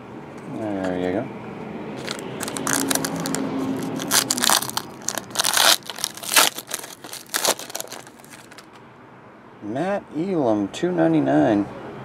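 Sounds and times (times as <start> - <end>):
foil wrapper crinkling and tearing: 2.0 - 8.7.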